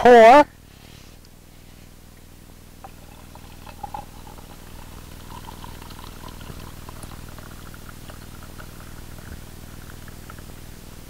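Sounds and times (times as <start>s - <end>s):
steady low hum: 0.0s - 11.0s
coffee pouring into a mug: 2.8s - 11.0s.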